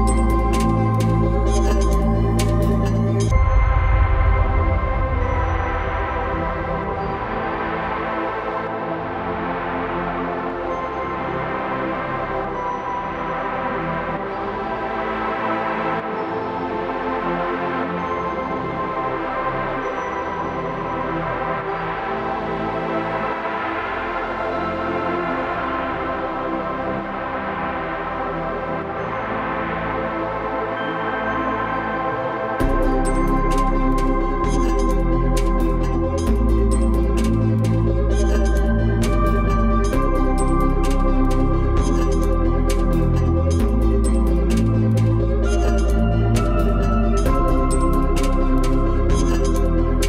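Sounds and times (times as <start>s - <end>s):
background music with held chords: 0.0s - 50.0s.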